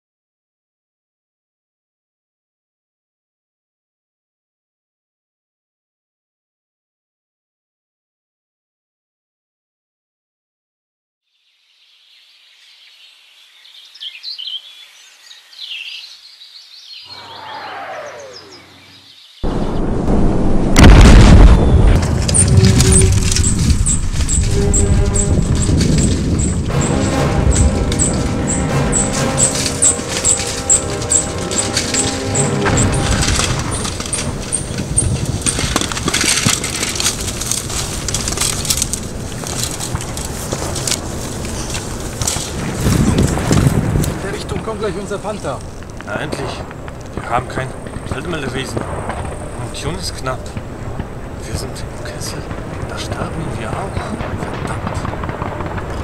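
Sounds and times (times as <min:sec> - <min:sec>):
birds chirping: 0:11.8 - 0:20.0, 0:21.4 - 0:35.6
low rumble: 0:19.4 - 0:48.1
bicycle tyres crunching on dirt: 0:21.6 - 0:51.2
bicycle squeaking: 0:22.2 - 0:40.0.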